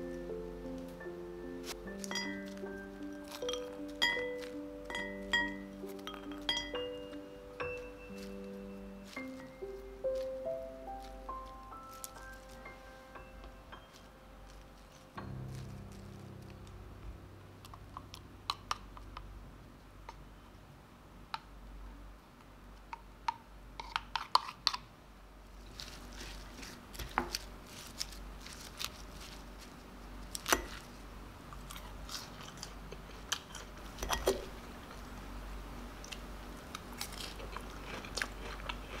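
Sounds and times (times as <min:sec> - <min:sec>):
faint low hum: 0:00.0 - 0:24.0
crisp crunches and clicks: 0:01.6 - 0:04.6, 0:08.1 - 0:16.8, 0:25.6 - 0:34.0, 0:36.0 - 0:39.0.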